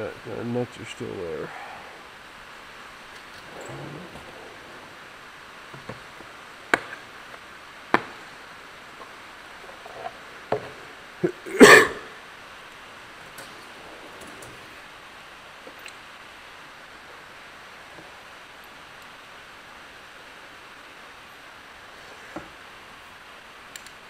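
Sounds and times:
metal drawers opening and shutting: 0:03.2 - 0:07.0, 0:13.2 - 0:14.9.

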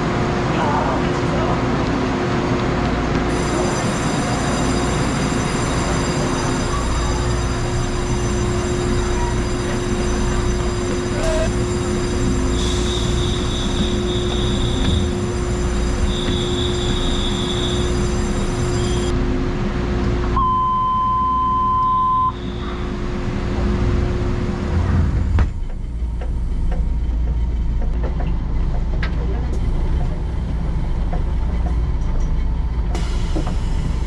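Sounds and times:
train low hum: 0:00.0 - 0:34.0
station bell ringing: 0:03.3 - 0:19.1
train door shutting: 0:12.5 - 0:19.1, 0:32.9 - 0:34.0
electronic beep: 0:20.4 - 0:22.6.

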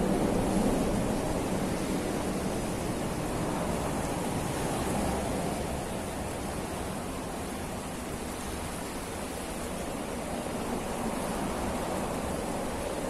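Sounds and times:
river rushing over rapids: 0:00.0 - 0:13.0.

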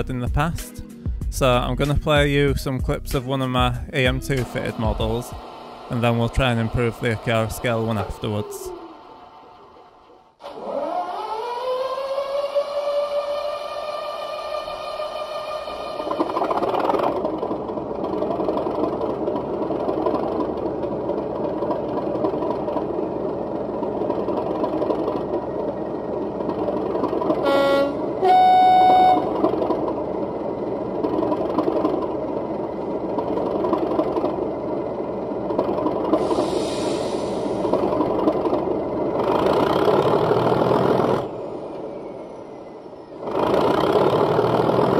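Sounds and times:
model locomotive engine running: 0:04.5 - 0:10.8, 0:35.3 - 0:41.6, 0:43.2 - 0:44.9
two-tone horn: 0:27.4 - 0:29.4
hiss: 0:36.2 - 0:37.8.

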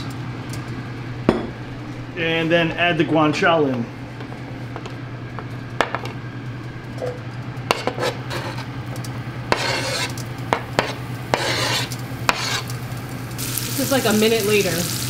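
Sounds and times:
knife scraping cutting board: 0:07.7 - 0:08.7, 0:09.5 - 0:10.2, 0:10.8 - 0:12.7
food sizzling in oil: 0:08.1 - 0:15.0.

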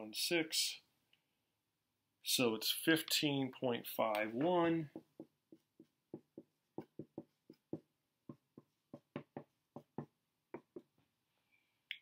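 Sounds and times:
marker writing on whiteboard: 0:04.0 - 0:11.2.

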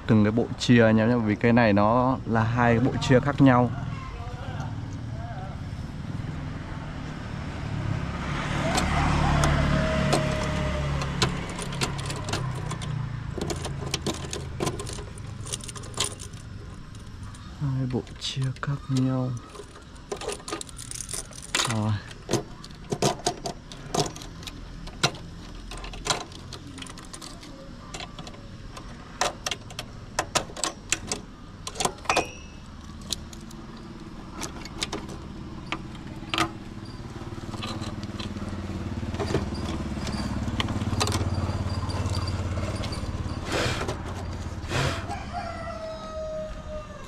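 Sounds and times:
low motor rumble: 0:00.0 - 0:47.0
plastic connectors clicking and rattling: 0:10.1 - 0:17.4, 0:18.0 - 0:32.2.

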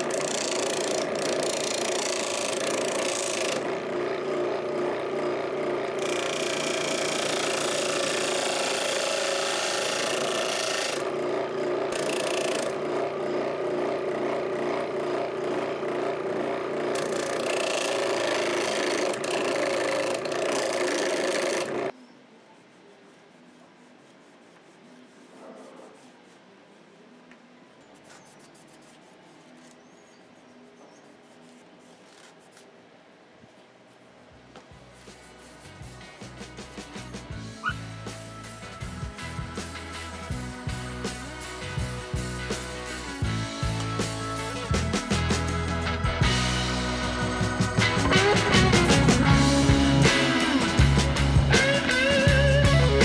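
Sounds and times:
disc sander motor hum: 0:00.0 - 0:21.9.

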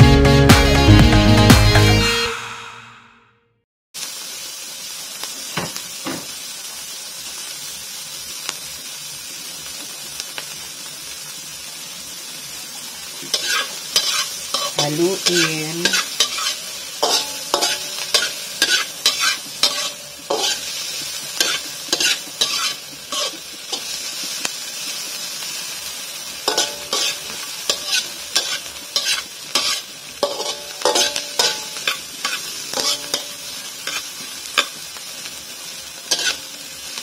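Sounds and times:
food sizzling in oil: 0:04.0 - 0:37.0
utensil scraping a pan: 0:13.3 - 0:23.9, 0:26.5 - 0:34.8, 0:36.1 - 0:36.4.

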